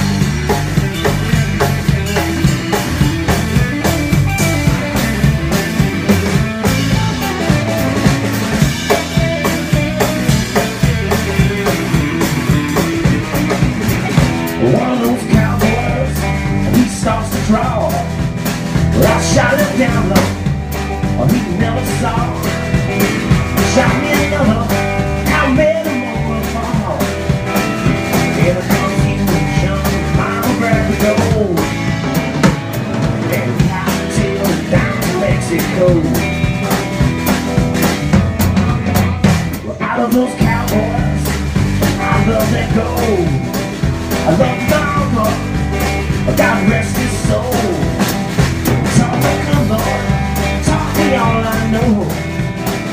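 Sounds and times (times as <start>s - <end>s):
drum kit beat: 0.0s - 52.9s
electric guitar lead: 0.0s - 52.9s
plucked bass guitar: 0.0s - 52.9s.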